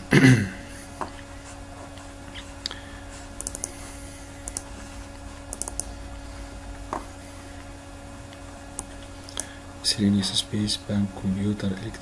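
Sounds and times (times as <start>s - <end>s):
faint steady hum: 0.0s - 12.0s
keyboard and mouse clicks: 3.4s - 3.8s, 4.4s - 4.7s, 5.5s - 5.9s.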